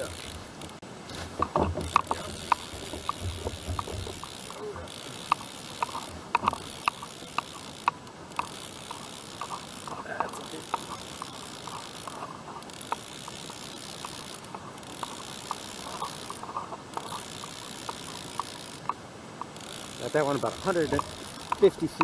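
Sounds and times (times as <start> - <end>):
fishing reel clicking: 0.0 - 0.8, 1.8 - 22.0.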